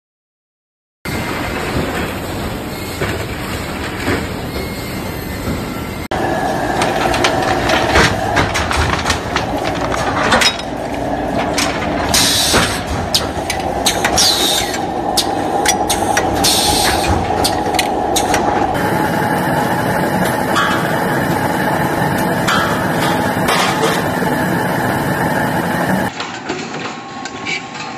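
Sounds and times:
machine drone: 0:04.0 - 0:26.1.

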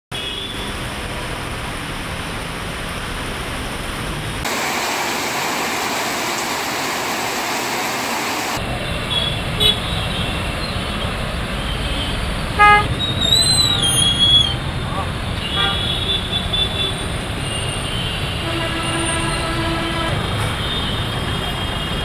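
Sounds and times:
traffic on a wet road: 0:00.1 - 0:22.0
heavy rain hissing: 0:00.6 - 0:08.6.

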